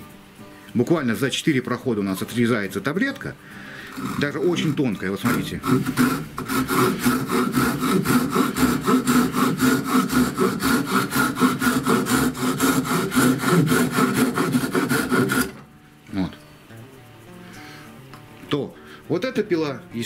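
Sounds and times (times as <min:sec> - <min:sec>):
pruning saw cutting wood: 0:03.5 - 0:15.7.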